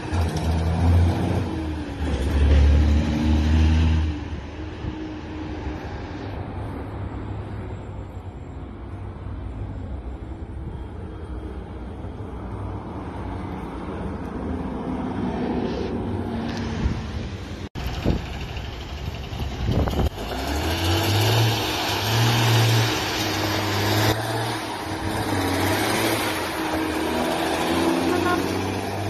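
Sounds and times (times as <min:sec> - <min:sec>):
road traffic: 0:00.0 - 0:29.0
heavy truck engine running: 0:16.8 - 0:29.0.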